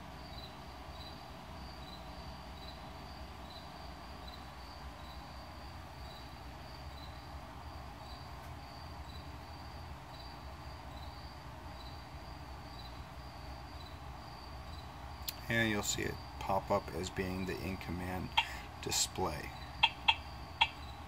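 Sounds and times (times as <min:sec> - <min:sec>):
low room hum: 0:00.0 - 0:21.0
faint high-pitched chirps: 0:17.4 - 0:21.0.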